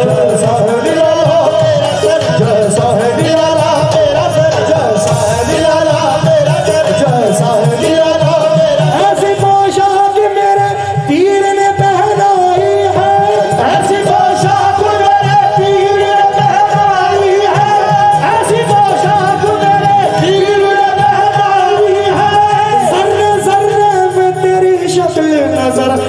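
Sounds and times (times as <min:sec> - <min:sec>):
harmonium holding notes: 0:00.0 - 0:26.0
singing voices: 0:00.0 - 0:26.0
tabla drumming: 0:00.0 - 0:26.0.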